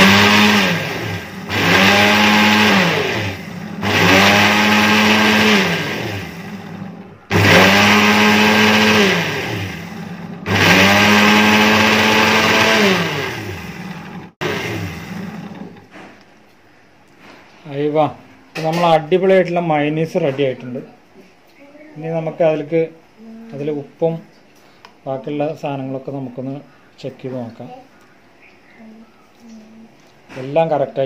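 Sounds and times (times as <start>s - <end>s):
mixer grinder motor whirring: 0.0s - 16.0s.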